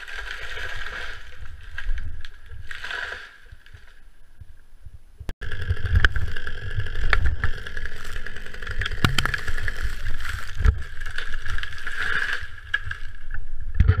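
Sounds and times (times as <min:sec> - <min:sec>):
rumbling microphone handling noise: 0:04.2 - 0:14.0
chainsaw idling: 0:05.4 - 0:10.5
crunching in snow: 0:07.5 - 0:13.2
sharp knocks: 0:08.9 - 0:09.6.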